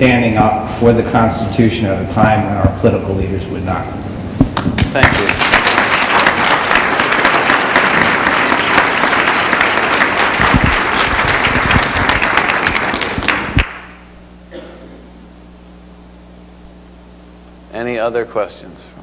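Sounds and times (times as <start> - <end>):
low room hum: 0.0 - 19.0
audience applauding: 4.6 - 14.0.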